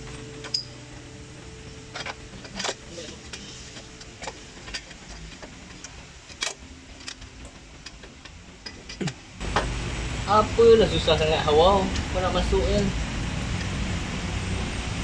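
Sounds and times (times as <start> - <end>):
metal parts and tools clicking: 0.4 - 0.7, 1.8 - 9.2.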